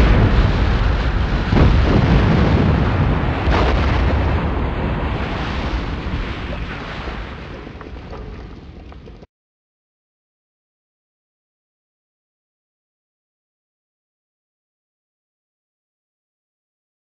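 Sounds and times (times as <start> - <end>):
bomb explosion rumbling blast: 0.0 - 9.3.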